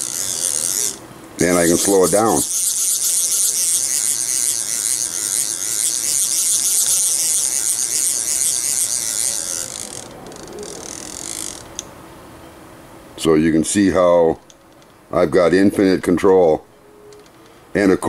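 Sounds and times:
router drive motors hissing: 0.0s - 11.7s.

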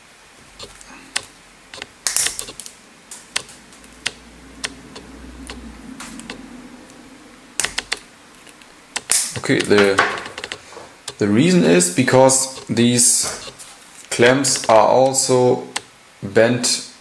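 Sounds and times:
side cutters clicking on metal: 0.6s - 6.4s, 7.6s - 11.2s, 12.4s - 13.6s, 14.4s - 15.9s.

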